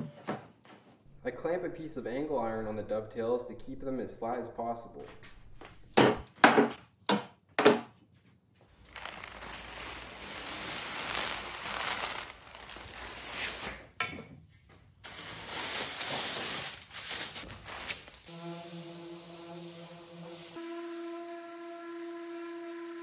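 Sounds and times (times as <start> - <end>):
plastic tape peeling off: 8.7 - 13.7, 15.1 - 18.3.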